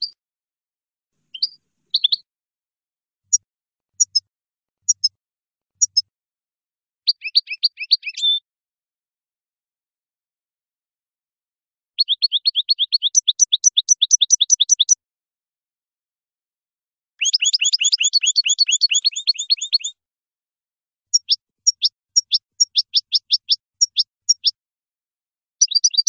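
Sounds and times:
goldfinch singing rapid high notes: 1.3s - 2.2s, 7.1s - 8.4s, 12.0s - 15.0s, 17.2s - 19.9s, 25.6s - 26.0s.

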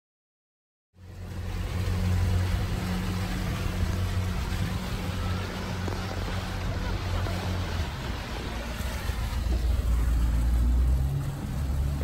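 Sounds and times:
motorboat engine drone: 1.0s - 12.0s
water rushing noise: 1.0s - 12.0s.

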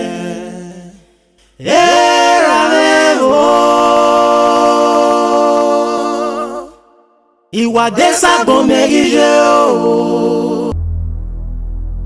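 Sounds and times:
person singing unaccompanied: 7.6s - 10.7s.

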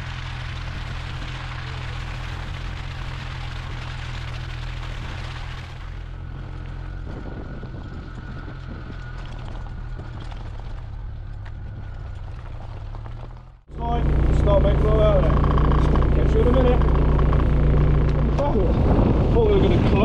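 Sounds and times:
water splashing off wheels: 0.0s - 13.6s
vehicle engine running: 0.0s - 20.0s.

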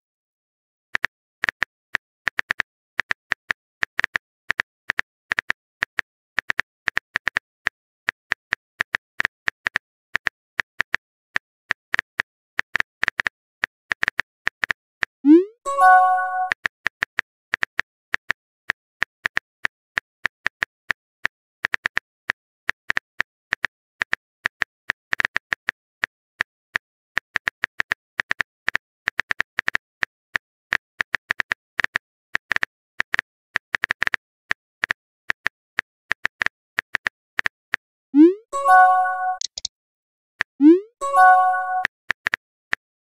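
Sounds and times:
short message chime: 15.7s - 16.5s, 38.6s - 39.5s, 41.0s - 41.8s
phone keyboard typing taps: 38.7s - 39.7s.

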